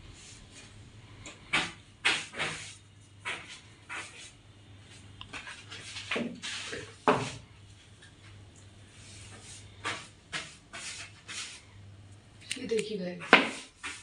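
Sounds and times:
brush scraping along ceiling: 0.0 - 0.8, 1.4 - 7.5, 8.8 - 11.7, 13.0 - 14.0.

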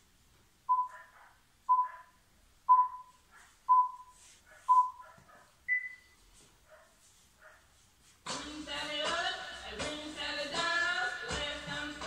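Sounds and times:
countdown timer beeping: 0.7 - 1.0, 1.7 - 2.0, 2.7 - 4.1, 4.7 - 5.0.

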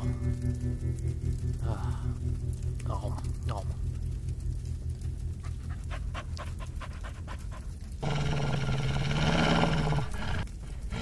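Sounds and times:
wolf growling: 5.4 - 11.0
wolf panting: 5.4 - 11.0.

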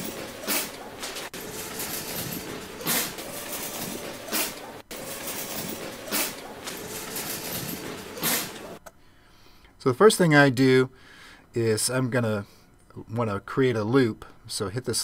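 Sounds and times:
pitched store ambience: 0.0 - 9.0.

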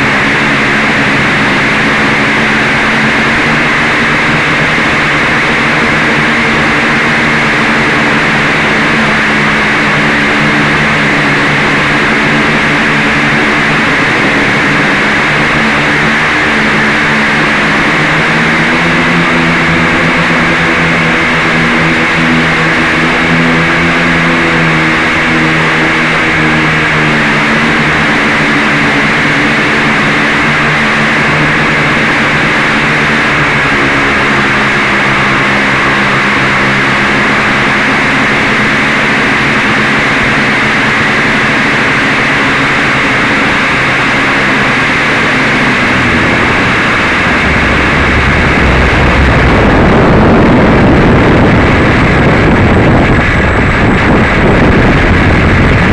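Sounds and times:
buzzing motor hum: 0.0 - 55.9
prop wash and wind rushing: 0.0 - 55.9.

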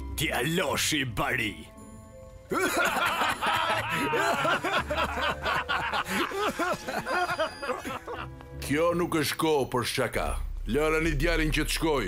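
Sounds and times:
men chuckling mockingly: 2.5 - 8.4.

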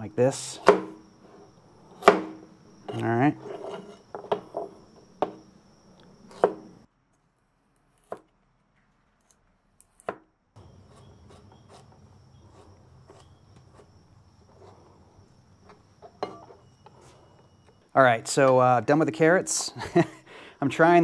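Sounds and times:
knife cutting on cutting board: 2.9 - 4.8.

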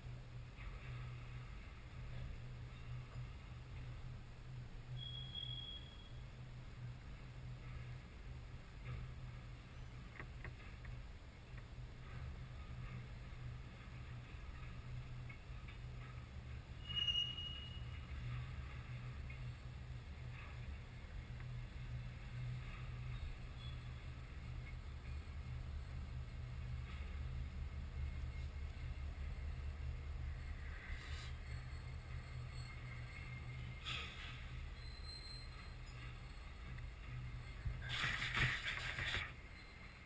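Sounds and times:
high squeal: 4.9 - 6.3, 16.8 - 18.1, 30.7 - 36.5
distant freight train rumble: 11.0 - 37.9.

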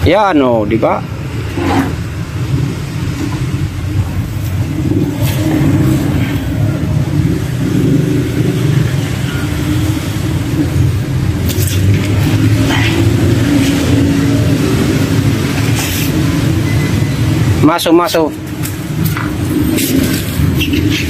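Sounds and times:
engine running: 1.1 - 17.6.

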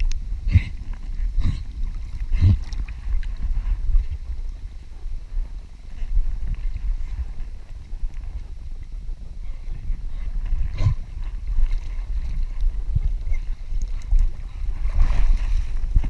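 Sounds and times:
water sloshing and splashing: 0.0 - 4.9, 9.6 - 16.0.

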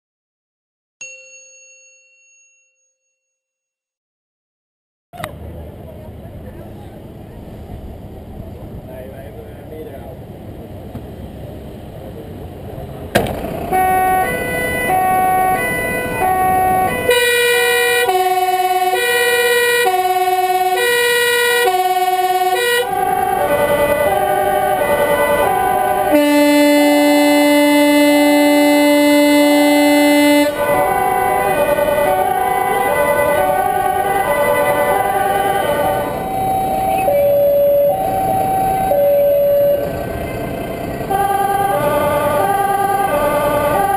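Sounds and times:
two-tone emergency sirens: 13.2 - 43.9
steady siren tone: 13.3 - 43.9.

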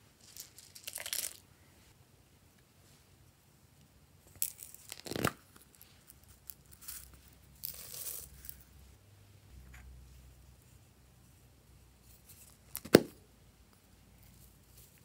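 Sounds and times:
sequins rustling: 0.0 - 2.0, 4.2 - 9.0, 9.6 - 13.0, 13.7 - 15.0.

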